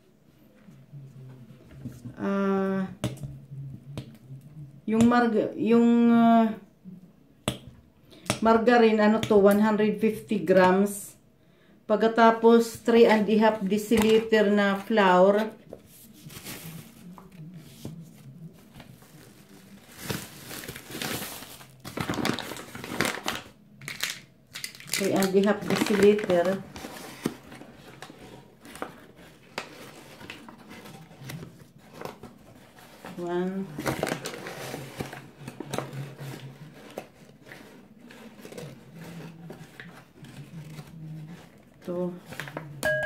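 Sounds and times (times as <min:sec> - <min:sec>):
faint low hum: 0:00.0 - 0:08.9
plastic bag crinkling: 0:18.6 - 0:29.0.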